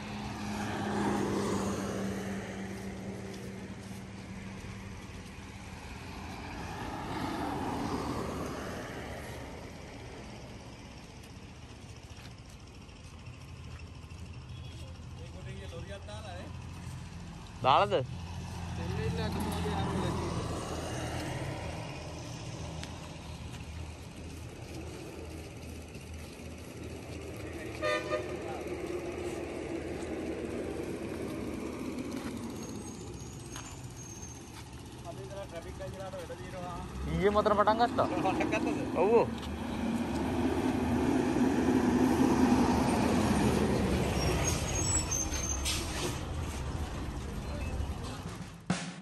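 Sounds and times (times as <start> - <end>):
diesel bus passing by: 0.0 - 48.7
engine idling: 9.4 - 17.9, 22.2 - 40.1.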